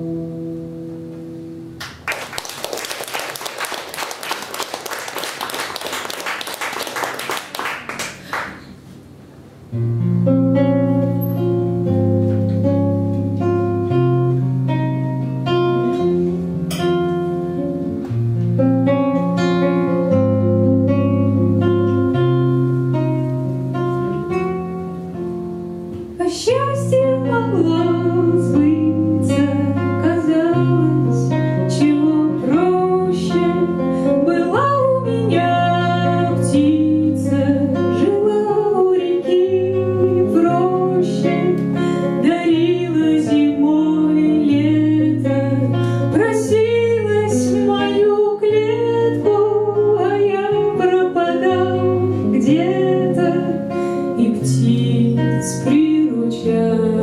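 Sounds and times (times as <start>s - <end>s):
fingerpicked acoustic guitar: 0.0s - 1.8s, 8.7s - 57.0s
woman singing: 26.2s - 57.0s.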